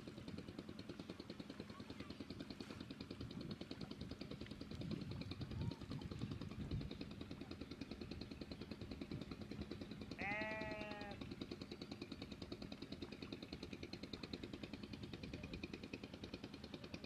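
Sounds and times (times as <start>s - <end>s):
small engine running: 0.0s - 17.0s
animal bleating: 10.2s - 11.2s.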